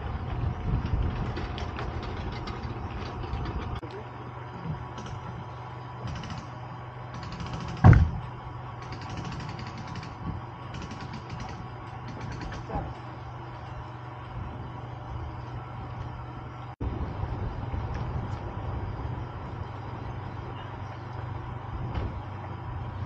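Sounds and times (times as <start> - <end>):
engine rumble: 0.0 - 23.0
vehicle engine hum: 0.0 - 23.0
loud thump: 7.8 - 8.2.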